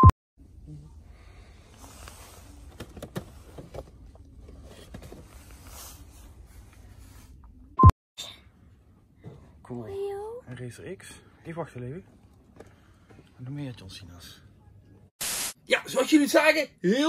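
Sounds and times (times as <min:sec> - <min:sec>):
low shop ambience: 0:00.0 - 0:17.0.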